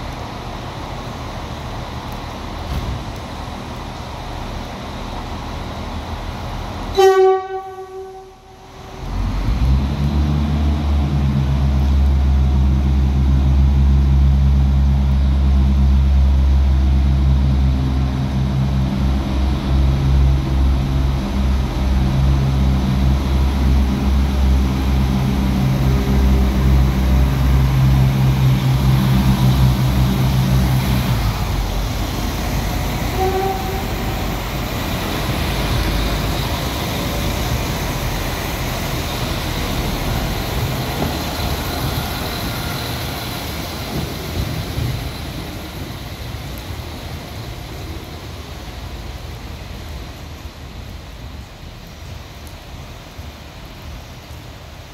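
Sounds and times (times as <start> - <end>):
train diesel engines droning: 0.0 - 54.9
train horn blast: 6.9 - 9.0, 33.0 - 34.2.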